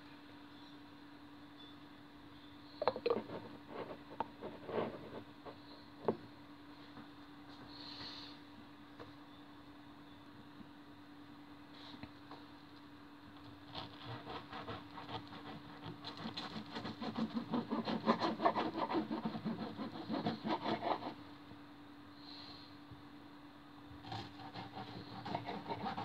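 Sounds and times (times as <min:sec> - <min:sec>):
knife sawing through toast: 0:13.7 - 0:21.2, 0:24.1 - 0:26.0.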